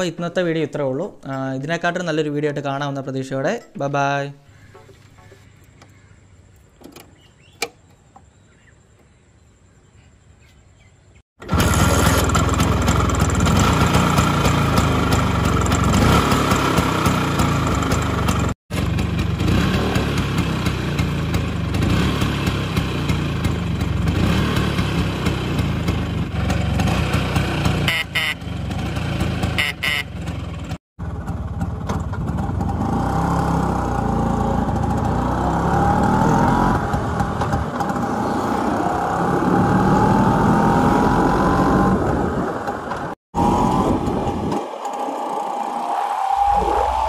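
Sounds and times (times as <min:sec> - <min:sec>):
scooter engine running: 0:11.4 - 0:40.7
wind noise on microphone: 0:43.4 - 0:47.0.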